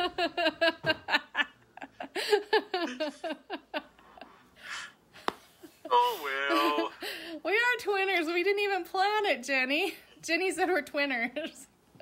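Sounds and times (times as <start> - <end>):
woman laughing: 0.0 - 4.4, 5.6 - 7.2.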